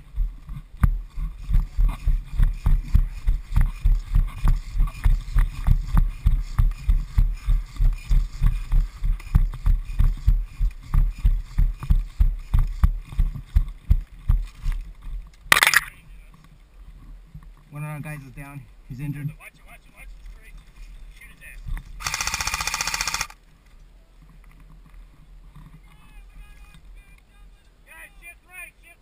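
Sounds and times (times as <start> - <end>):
running footsteps on sand: 0.0 - 15.2.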